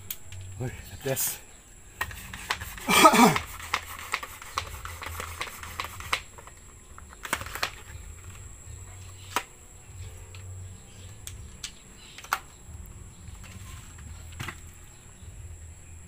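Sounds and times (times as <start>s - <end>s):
toy gun handling clicks: 3.3s - 7.9s, 11.2s - 12.5s
low hum: 7.8s - 16.0s.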